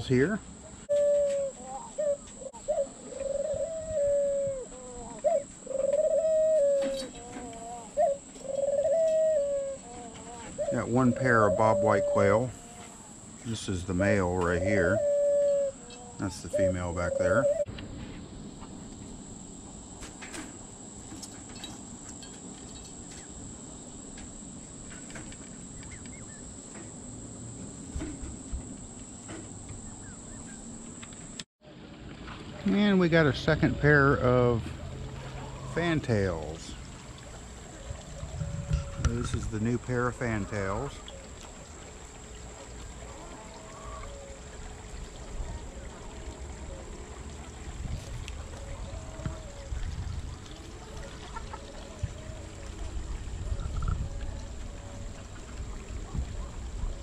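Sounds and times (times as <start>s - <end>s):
doves cooing: 0.0s - 17.7s, 32.3s - 57.0s
insects droning: 0.0s - 57.0s.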